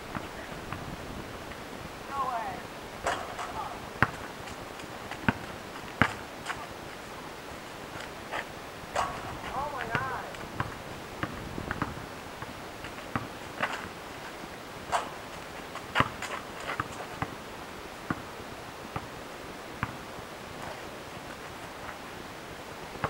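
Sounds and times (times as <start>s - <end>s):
basketball bouncing on asphalt: 3.0s - 6.7s, 9.0s - 14.0s, 15.0s - 17.4s, 18.1s - 18.3s, 19.8s - 20.0s
sneakers scraping pavement: 3.0s - 7.1s.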